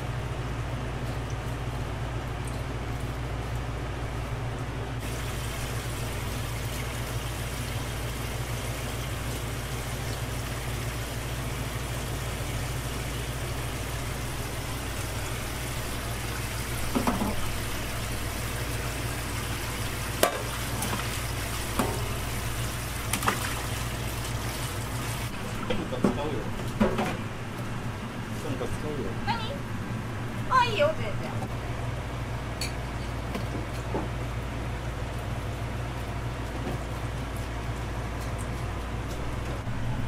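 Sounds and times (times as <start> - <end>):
constant low hum: 0.0 - 40.0
tap water running: 5.0 - 26.2.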